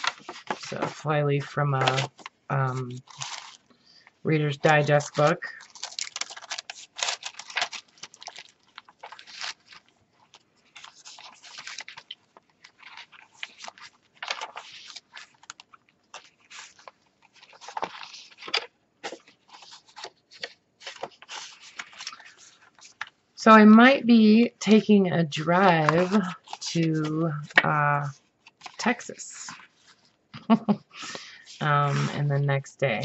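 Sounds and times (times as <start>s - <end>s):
pages tapping: 0.0s - 1.0s, 4.7s - 23.2s, 25.6s - 28.8s
paper pages rustling: 0.0s - 23.3s, 24.7s - 33.0s.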